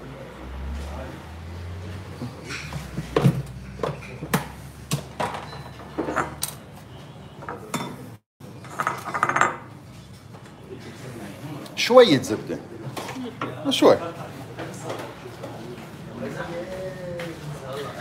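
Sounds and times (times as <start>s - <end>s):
utensils clinking against dishes: 5.2s - 6.7s, 7.4s - 10.5s.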